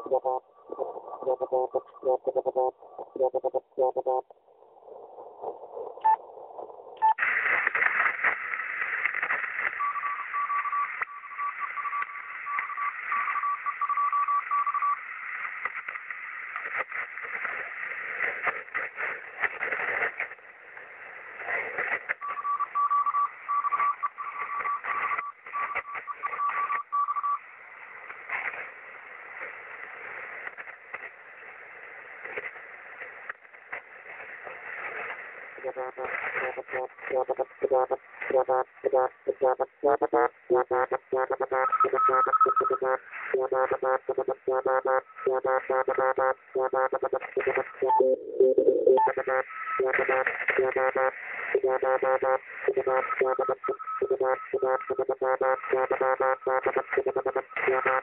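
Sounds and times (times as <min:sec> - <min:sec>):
morse code beeps: 0:00.0 - 0:04.2, 0:22.2 - 0:27.4, 0:35.6 - 0:58.0
radio static hiss and crackle: 0:00.0 - 0:58.0.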